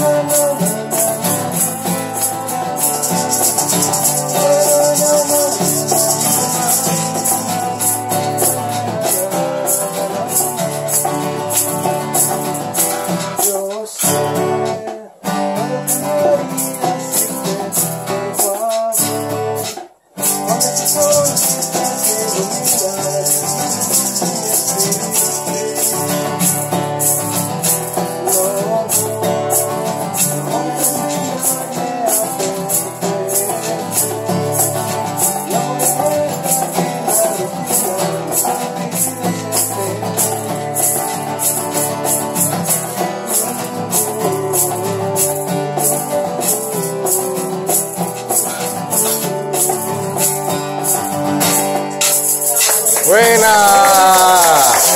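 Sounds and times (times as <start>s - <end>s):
man singing: 0.0s - 54.9s
maracas shaken: 0.0s - 54.9s
strummed acoustic guitar: 0.0s - 54.9s.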